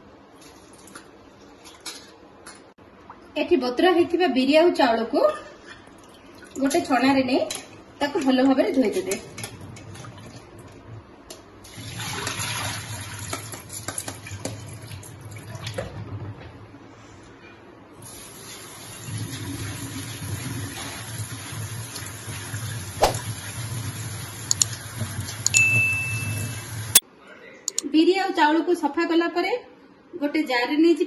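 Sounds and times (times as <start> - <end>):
tap water splashing into colander: 11.7 - 15.9.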